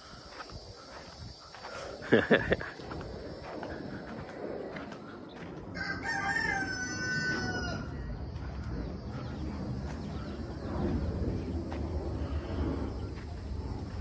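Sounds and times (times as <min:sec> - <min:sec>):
rooster crowing: 0:05.7 - 0:08.3.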